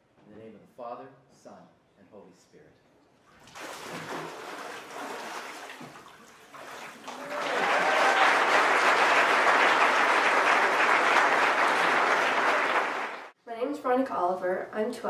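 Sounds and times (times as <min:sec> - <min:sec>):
water splashing: 0:03.3 - 0:07.4
congregation applauding: 0:06.9 - 0:13.4.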